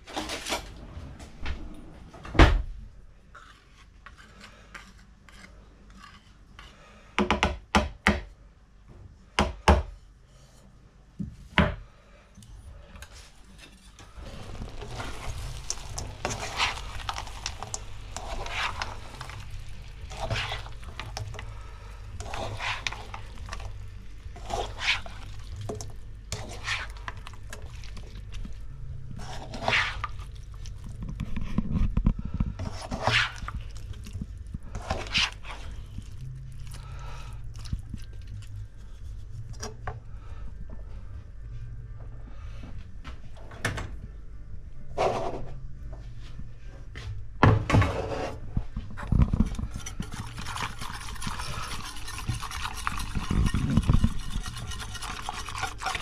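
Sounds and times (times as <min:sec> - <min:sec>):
steady low hum: 0:10.0 - 0:56.0
spatula scraping frying pan: 0:13.5 - 0:21.5, 0:22.1 - 0:27.7, 0:29.1 - 0:30.3, 0:32.6 - 0:33.6, 0:34.7 - 0:35.8, 0:49.6 - 0:56.0.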